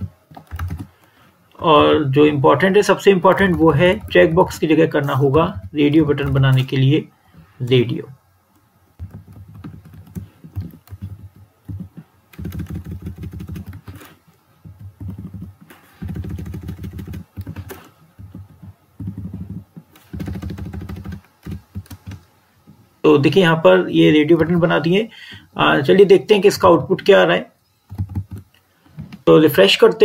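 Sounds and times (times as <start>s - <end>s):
computer keyboard typing: 0.0s - 1.1s, 2.9s - 6.7s, 9.0s - 22.3s, 27.9s - 28.6s.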